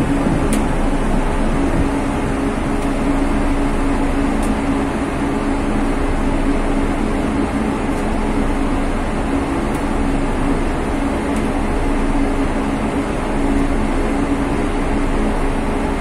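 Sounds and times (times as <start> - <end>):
ship machinery droning: 0.0 - 16.0.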